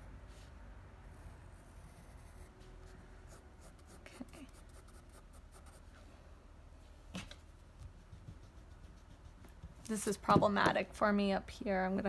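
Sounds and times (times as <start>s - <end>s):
pencil scratching on paper: 1.5s - 5.8s, 7.8s - 10.2s
soft knock: 9.5s - 10.8s.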